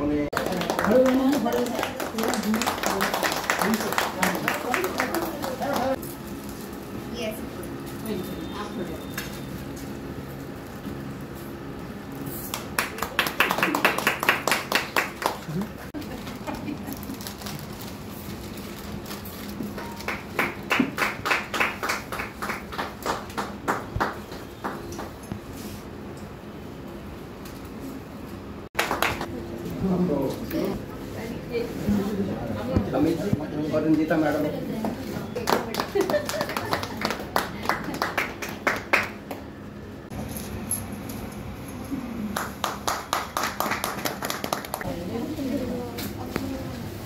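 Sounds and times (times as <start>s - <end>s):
hands clapping: 0.3s - 6.0s, 12.5s - 15.9s, 19.8s - 25.2s, 28.8s - 29.3s, 35.4s - 39.5s, 42.3s - 44.9s
faint room murmur: 12.1s - 47.0s.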